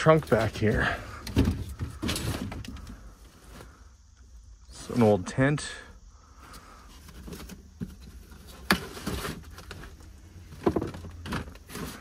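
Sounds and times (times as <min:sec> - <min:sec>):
cardboard boxes rustling and scraping: 0:00.0 - 0:03.9, 0:06.8 - 0:12.0.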